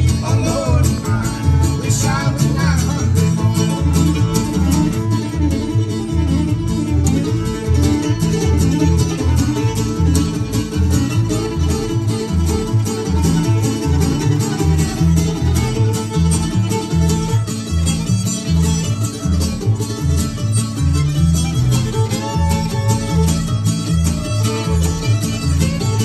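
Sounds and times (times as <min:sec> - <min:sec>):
fiddle playing lead: 0:00.0 - 0:26.0
strummed acoustic guitar: 0:00.0 - 0:26.0
upright bass line: 0:00.0 - 0:26.0.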